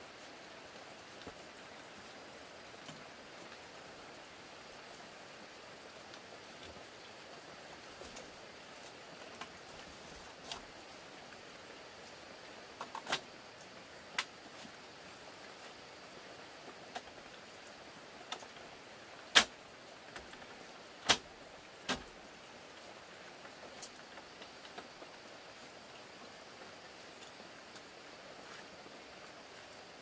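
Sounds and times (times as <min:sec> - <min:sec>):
steady hiss: 0:00.0 - 0:30.0
bamboo slats clicking and knocking: 0:12.8 - 0:13.3, 0:14.2 - 0:14.4, 0:19.3 - 0:22.2.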